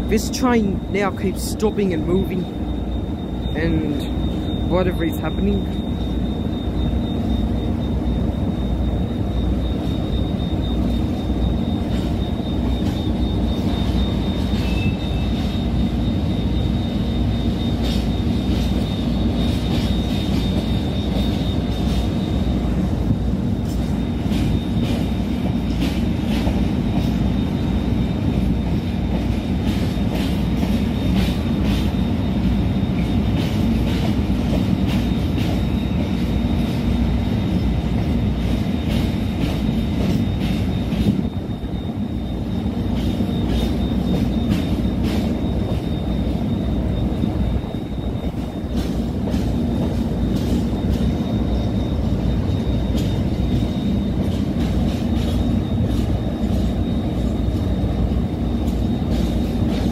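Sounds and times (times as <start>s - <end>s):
freight train wagons rolling: 0.0s - 59.9s.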